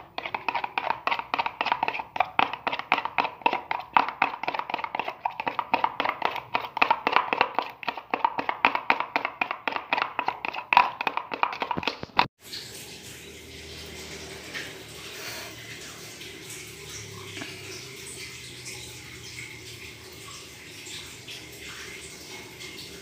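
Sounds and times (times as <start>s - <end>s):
spoon tapping plastic jug: 0.0s - 12.3s.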